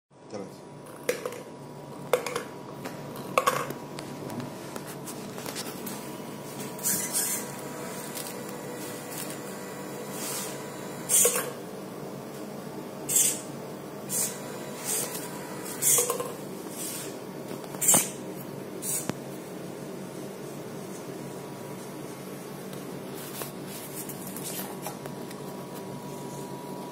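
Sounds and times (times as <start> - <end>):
servo motors whirring: 14.1 - 16.1.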